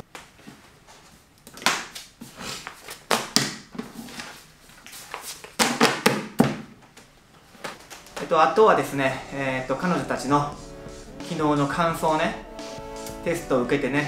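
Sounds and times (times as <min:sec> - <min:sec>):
paper sheets rustling: 0:01.8 - 0:06.0.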